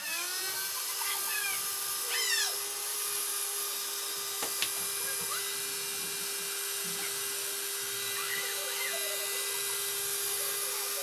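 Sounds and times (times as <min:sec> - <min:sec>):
hair dryer blowing: 0:00.0 - 0:11.0.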